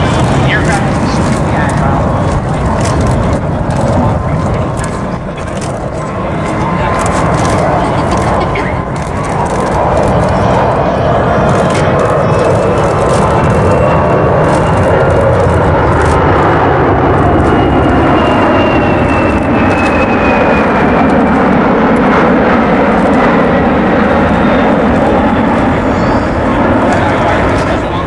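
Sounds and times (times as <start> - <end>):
high engine whine: 0.0 - 28.0
jet aircraft flying by: 0.0 - 28.0.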